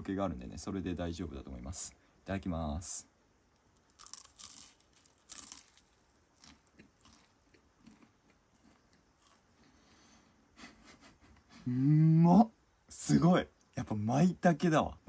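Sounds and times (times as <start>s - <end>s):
crunching and chewing batter: 3.8s - 9.6s.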